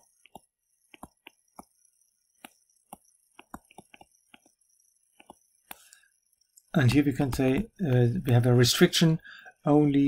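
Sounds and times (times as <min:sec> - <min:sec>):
stylus tapping on tablet screen: 0:00.0 - 0:01.8, 0:02.4 - 0:05.8.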